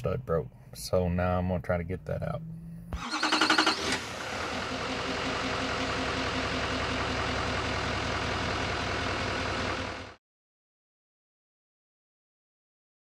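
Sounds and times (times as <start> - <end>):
engine running steadily: 2.9 - 10.2.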